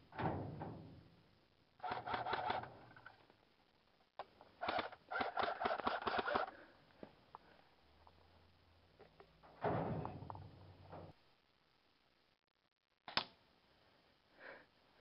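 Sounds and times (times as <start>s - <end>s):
airsoft rifle firing: 1.8s - 2.7s, 4.6s - 6.5s.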